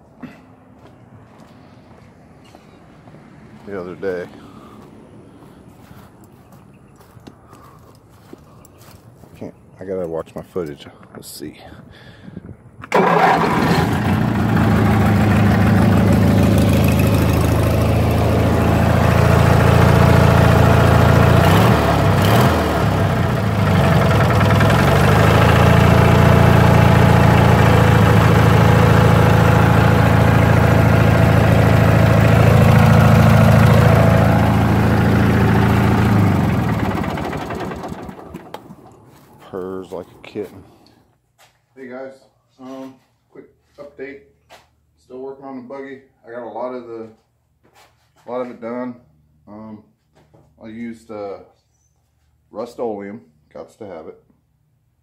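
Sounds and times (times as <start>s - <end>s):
riding mower engine running: 12.8s - 40.5s.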